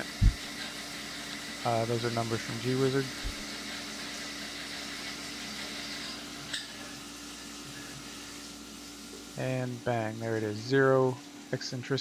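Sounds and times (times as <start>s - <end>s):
mill spindle hum: 0.0s - 4.5s
splashing coolant hiss: 0.0s - 6.4s.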